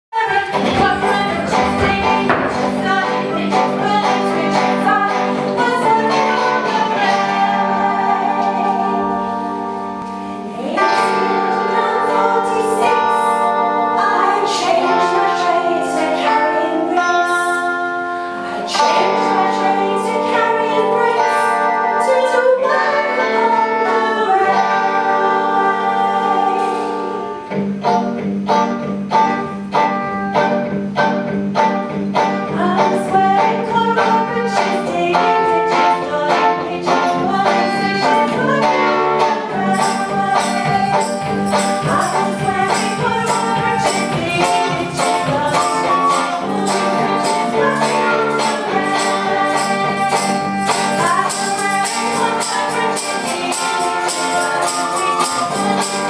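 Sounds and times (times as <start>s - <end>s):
high bright percussion: 0.2s - 7.9s, 39.4s - 56.0s.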